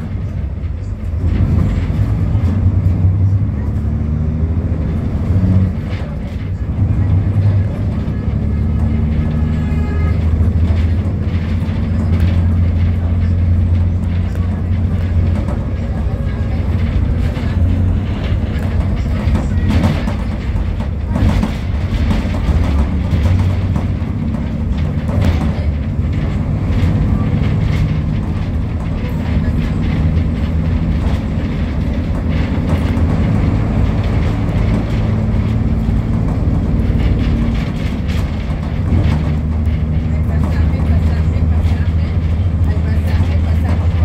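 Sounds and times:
truck and bus engines rumbling: 0.0 - 44.0.

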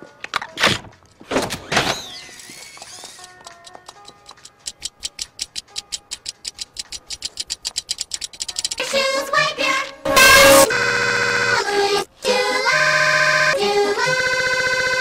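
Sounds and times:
clockwork ticking: 2.8 - 9.0.

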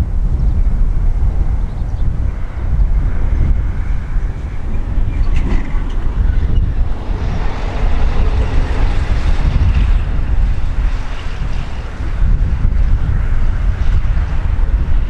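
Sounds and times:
jet engines roaring: 0.0 - 15.0
wind buffeting microphone: 0.0 - 15.0.

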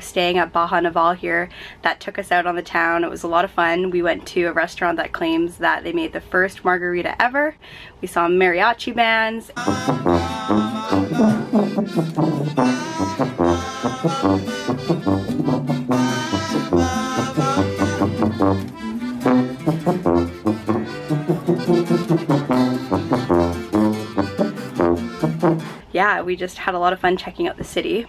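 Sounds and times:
accordion melody: 9.6 - 25.8
sousaphone bass line: 9.6 - 25.8
twelve-string guitar strumming: 9.6 - 25.8.

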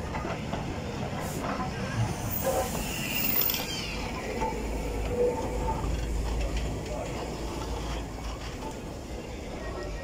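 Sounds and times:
steam locomotive hiss: 1.1 - 4.9.

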